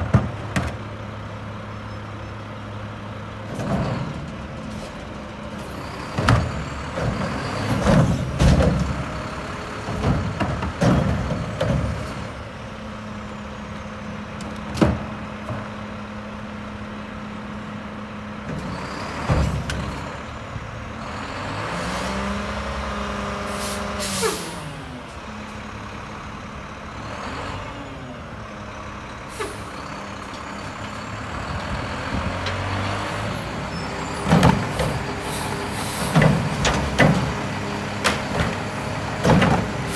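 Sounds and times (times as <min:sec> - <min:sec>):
garbage truck engine and hydraulics: 0:00.0 - 0:39.9
sharp clanks and thuds: 0:06.2 - 0:09.0, 0:39.2 - 0:39.8
air-brake hiss: 0:23.5 - 0:24.7, 0:29.3 - 0:29.8.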